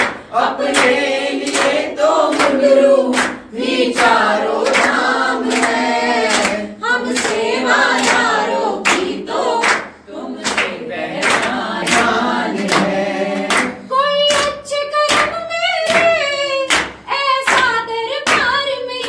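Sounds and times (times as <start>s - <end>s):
chorus singing devotional song: 0.0s - 14.0s
rhythmic clapping: 0.0s - 19.0s.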